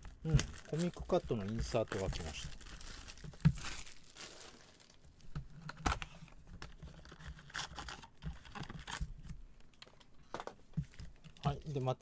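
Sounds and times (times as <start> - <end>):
foil card packs crinkling and tapping: 0.0 - 9.2.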